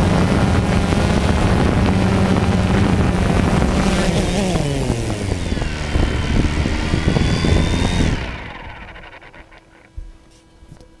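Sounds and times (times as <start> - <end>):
drone propellers whirring: 0.0 - 10.0.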